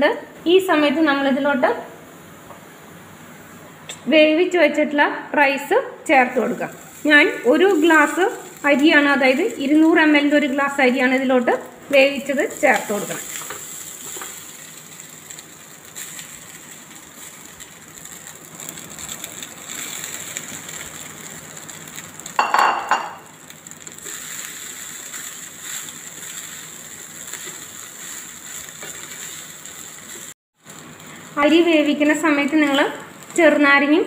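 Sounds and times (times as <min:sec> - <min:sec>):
spatula clanking on pan: 0:22.4 - 0:23.2.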